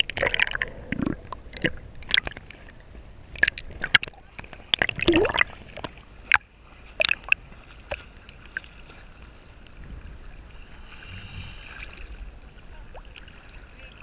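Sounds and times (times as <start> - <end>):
water sloshing against camera: 0.0 - 14.0
sharp splashes: 3.3 - 8.7.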